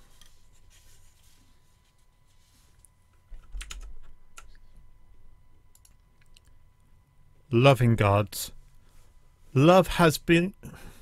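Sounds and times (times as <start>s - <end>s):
computer keys clicking: 3.3s - 4.6s, 5.7s - 6.5s.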